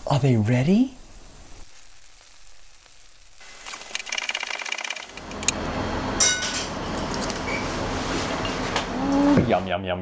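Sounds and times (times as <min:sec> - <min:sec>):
steady hiss: 0:00.0 - 0:05.5.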